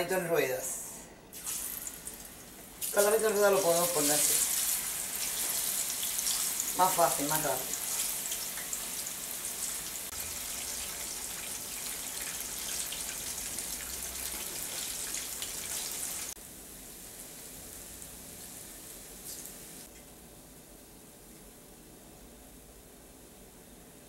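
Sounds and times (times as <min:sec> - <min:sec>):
plantain frying with crackling: 0:01.3 - 0:20.0.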